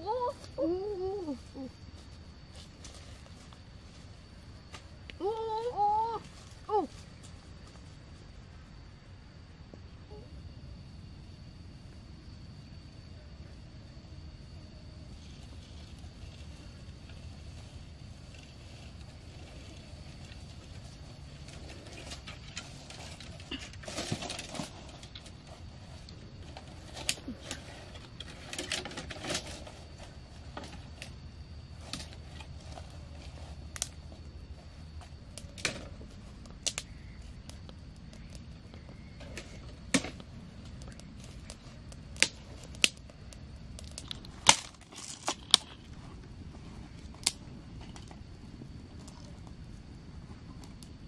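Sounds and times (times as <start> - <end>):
twigs snapping: 43.8 - 45.8.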